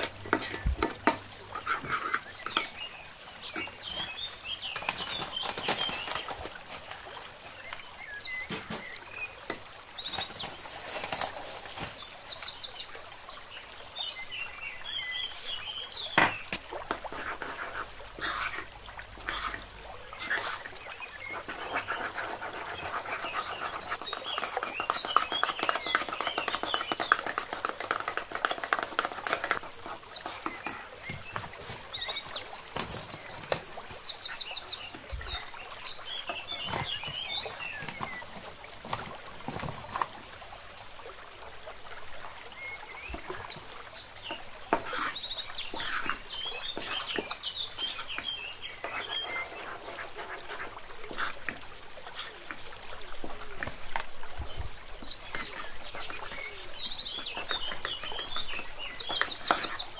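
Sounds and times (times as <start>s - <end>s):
small birds chirping: 0.0s - 41.1s, 42.4s - 59.9s
metal spoon scraping ceramic mug: 0.3s - 2.8s.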